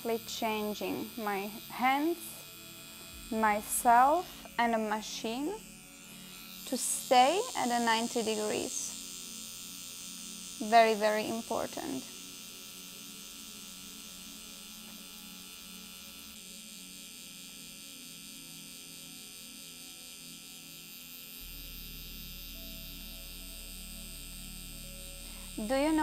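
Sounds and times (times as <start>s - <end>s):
tattoo pen electric buzz: 0.0s - 26.0s
low hum: 1.7s - 8.5s, 21.4s - 26.0s.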